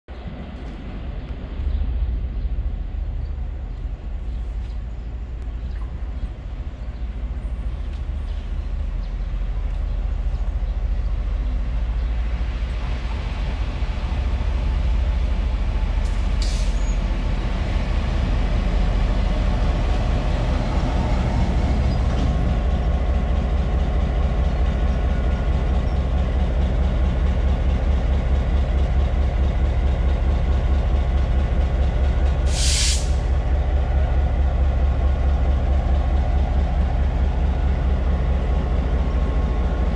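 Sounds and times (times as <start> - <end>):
locomotive diesel engine humming: 1.8 - 39.9
air release hisses: 32.5 - 33.3.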